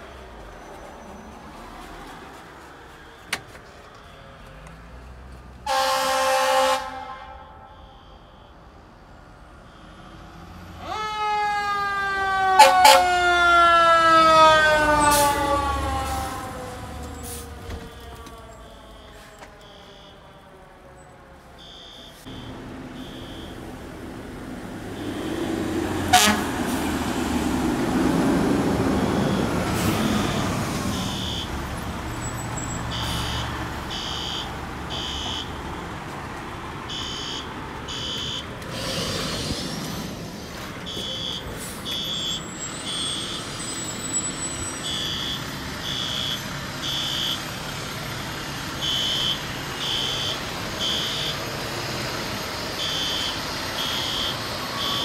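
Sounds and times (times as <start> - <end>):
fire engine rumbling: 0.0 - 55.0
loud sharp horn blast: 5.6 - 8.2, 12.5 - 13.1, 26.1 - 26.9
fire alarm beeping: 7.4 - 8.7, 17.9 - 20.5, 21.6 - 23.6, 29.0 - 29.5, 30.1 - 31.5, 32.3 - 35.5, 36.9 - 38.5, 40.9 - 47.5, 48.8 - 51.4, 52.8 - 55.0.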